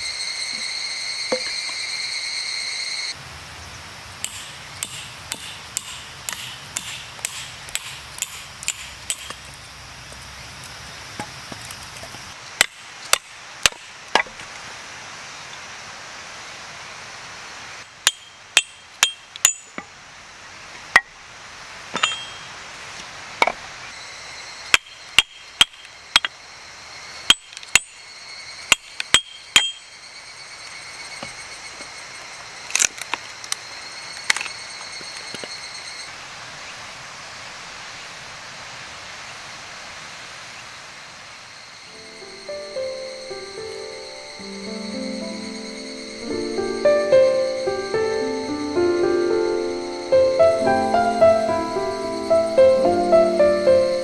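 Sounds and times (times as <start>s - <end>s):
metal striking metal: 4.2s - 9.4s, 17.8s - 19.9s, 21.9s - 22.5s, 28.7s - 29.9s.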